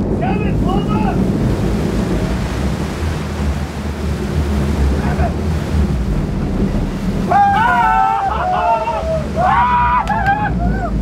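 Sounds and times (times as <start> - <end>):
boat engine rumble: 0.0 - 11.0
wake water rushing: 0.0 - 11.0.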